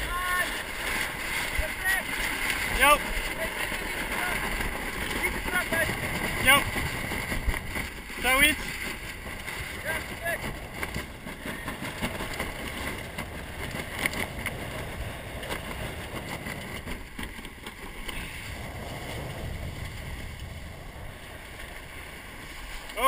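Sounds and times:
sharp water splashes: 0.0s - 12.8s
water rushing along a hull: 0.0s - 23.0s
wind buffeting microphone: 0.0s - 23.0s.

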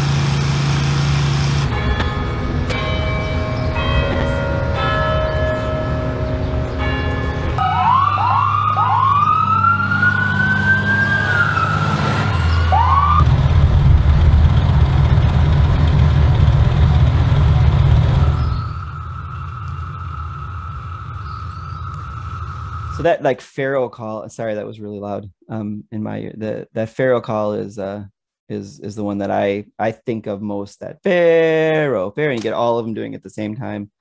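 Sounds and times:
emergency vehicle siren wailing: 5.2s - 13.4s, 18.0s - 23.0s
horn-like tones changing pitch: 7.6s - 13.2s, 18.4s - 23.1s
motorcycle engine rumbling: 11.4s - 23.1s.

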